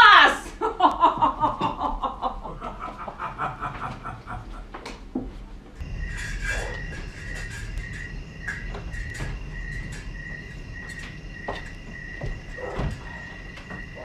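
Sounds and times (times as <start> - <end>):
actors moving knocks and rustles: 1.0 - 14.0
crickets chirping: 5.8 - 14.0.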